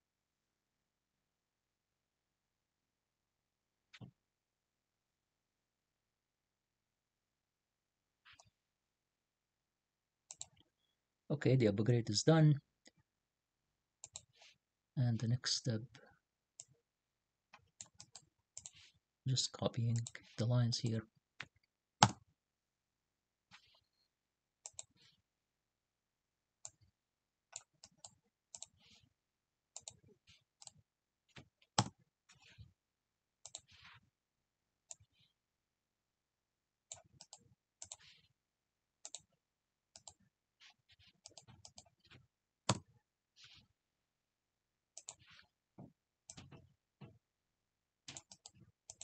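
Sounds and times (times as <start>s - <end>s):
mouse clicks and key taps: 21.4s - 22.3s
mouse and keyboard clicks: 48.1s - 49.0s.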